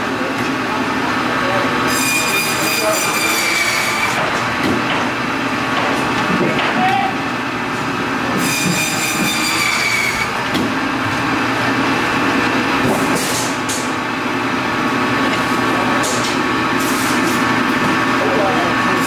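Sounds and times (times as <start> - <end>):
band saw cutting bone: 1.8 - 5.1, 8.3 - 10.8, 12.8 - 14.0
high blade squeal: 1.9 - 4.1.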